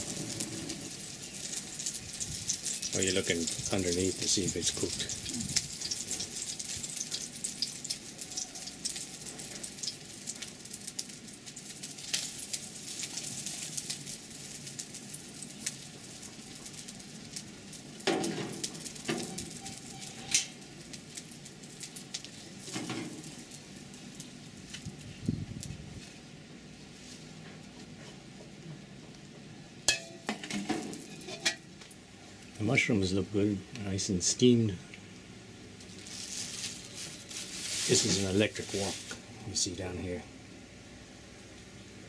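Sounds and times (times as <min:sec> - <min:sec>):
omelette sizzling in oil: 0:00.0 - 0:26.2, 0:29.9 - 0:32.5, 0:35.7 - 0:39.2
metal spatula scraping wok: 0:30.4 - 0:31.6.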